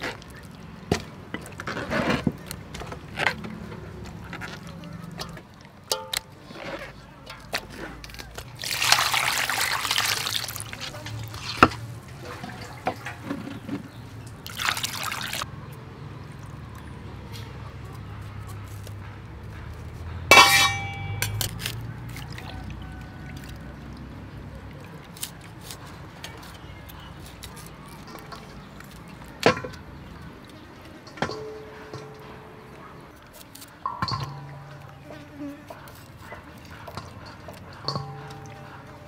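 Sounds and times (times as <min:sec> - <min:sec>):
handling clicks and knocks: 0:00.0 - 0:08.6, 0:24.8 - 0:35.0
water pouring into a metal bowl: 0:07.3 - 0:13.4, 0:14.2 - 0:15.5, 0:37.2 - 0:39.0
ringing clatter: 0:20.3 - 0:21.4.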